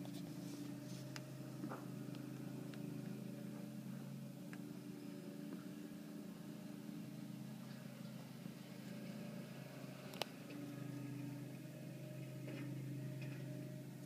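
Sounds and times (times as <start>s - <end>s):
garden tractor engine running: 0.0s - 14.0s.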